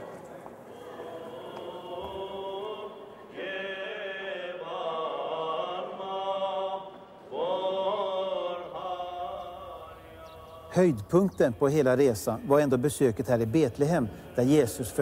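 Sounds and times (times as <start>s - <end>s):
voices singing a chant: 0.7s - 15.0s.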